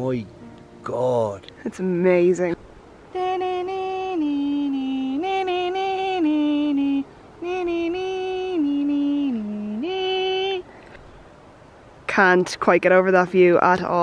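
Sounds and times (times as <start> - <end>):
person singing long notes: 3.1 - 10.8.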